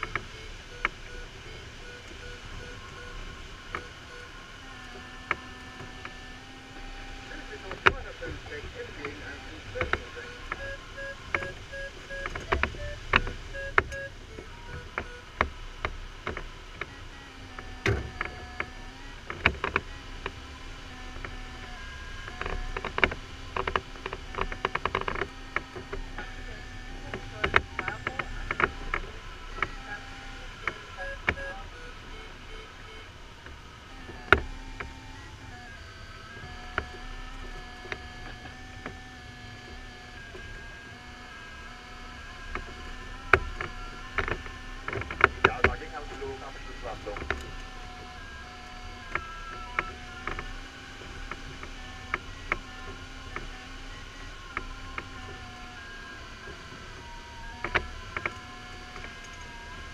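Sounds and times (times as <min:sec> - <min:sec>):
variometer beeping tone: 0:00.0 - 0:04.4, 0:06.6 - 0:15.6, 0:25.9 - 0:38.6
sharp clicks and knocks: 0:07.7 - 0:17.0.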